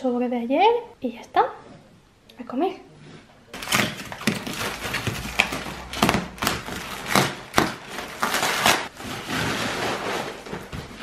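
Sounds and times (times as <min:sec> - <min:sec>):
plastic rustling: 0:03.6 - 0:11.0
plastic wrapping ripping: 0:03.6 - 0:11.0.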